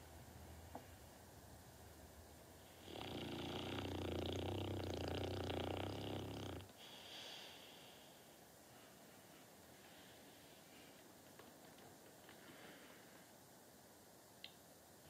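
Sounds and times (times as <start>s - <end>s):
dog snoring: 2.6s - 6.9s.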